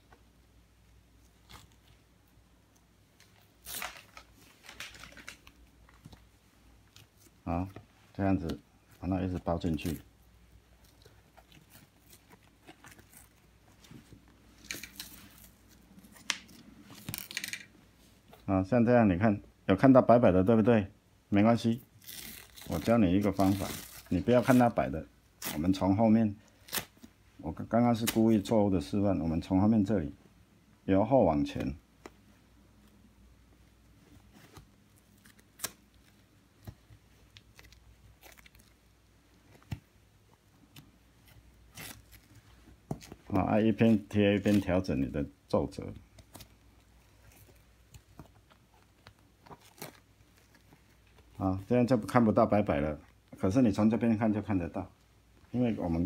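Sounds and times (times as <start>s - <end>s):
hands rustling and scratching leather: 0.0s - 18.5s, 21.8s - 25.8s, 31.5s - 45.1s, 45.8s - 52.2s.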